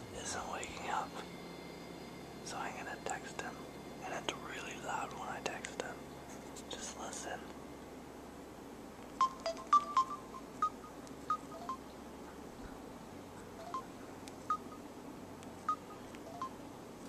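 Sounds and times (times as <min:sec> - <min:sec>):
phone keypad beeps: 0:09.2 - 0:11.8, 0:13.6 - 0:13.9, 0:15.7 - 0:16.6.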